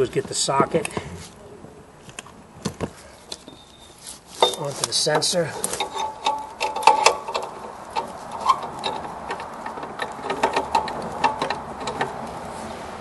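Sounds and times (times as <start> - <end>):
metal clicks and clinks: 4.4 - 12.2.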